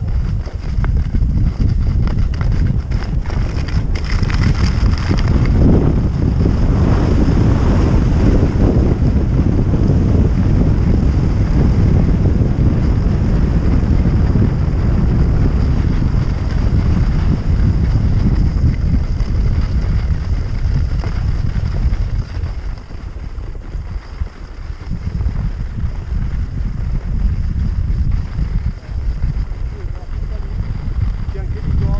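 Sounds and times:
wind buffeting microphone: 0:00.0 - 0:31.9
skis hissing on snow: 0:16.0 - 0:31.8.

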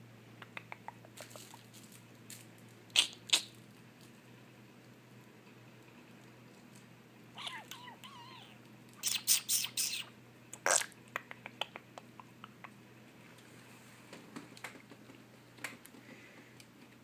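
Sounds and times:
puppy sneezing: 0:03.0 - 0:03.6, 0:09.0 - 0:10.9
puppy whimpering: 0:07.4 - 0:10.1.

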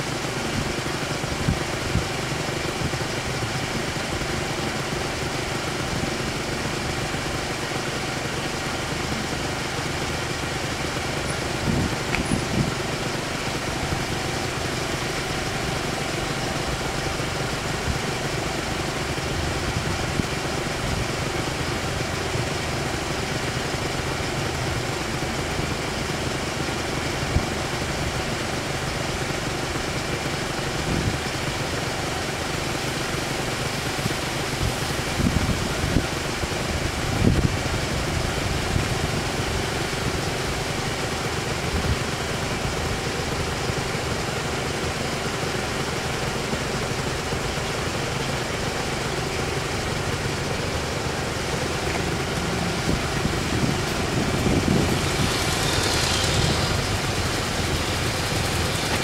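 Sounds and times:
car engines idling: 0:00.0 - 0:59.0.

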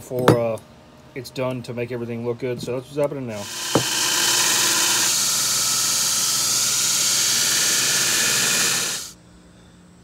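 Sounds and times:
belt grinder grinding steel: 0:03.4 - 0:09.1.

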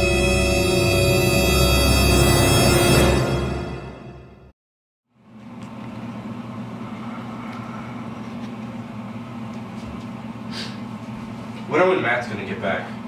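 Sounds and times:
low room hum: 0:05.1 - 0:13.0.

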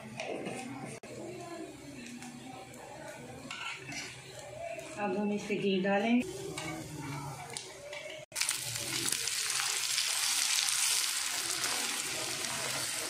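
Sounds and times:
flatbread sizzling on a griddle: 0:08.4 - 0:13.0.

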